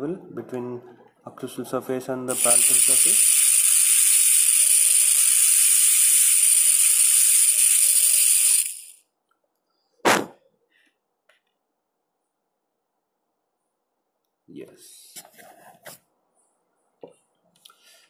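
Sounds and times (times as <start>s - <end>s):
dental drill whine: 2.3s - 9.0s.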